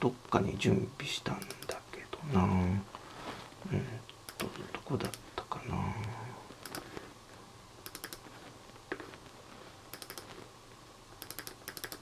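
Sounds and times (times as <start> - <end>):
computer mouse clicks: 1.4 - 1.8, 4.3 - 5.2, 6.6 - 6.9, 7.8 - 8.3, 9.9 - 10.4, 11.2 - 12.0.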